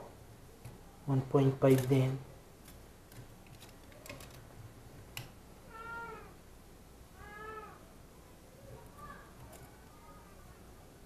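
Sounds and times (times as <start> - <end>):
cat meowing: 5.7 - 6.3, 7.2 - 7.8.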